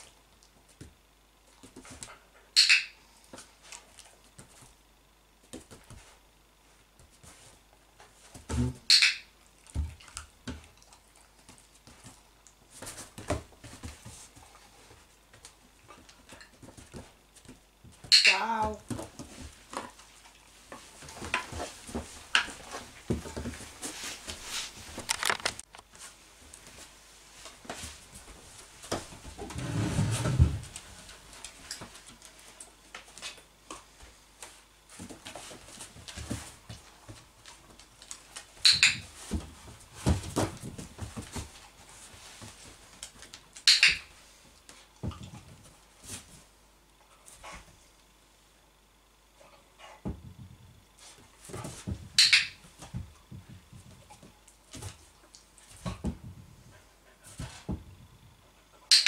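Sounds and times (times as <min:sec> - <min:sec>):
taps and rustles on wooden floor: 0:34.4 - 0:44.0.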